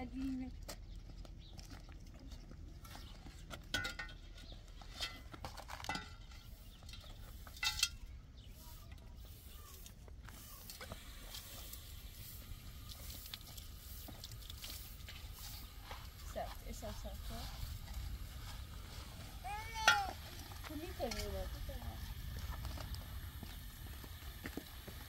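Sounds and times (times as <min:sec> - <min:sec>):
broom sweeping ground: 0:04.8 - 0:25.0
low steady rumble: 0:11.6 - 0:25.0.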